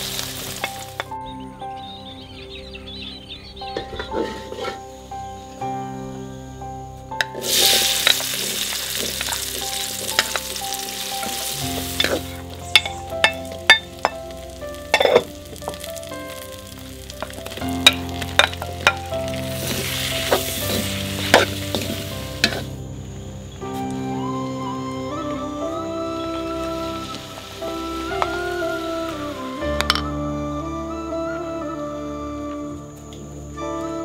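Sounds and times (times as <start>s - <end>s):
corn sizzling in hot oil: 0.0s - 1.1s, 7.2s - 22.8s, 26.6s - 29.7s
spatula scraping wok: 17.4s - 22.7s.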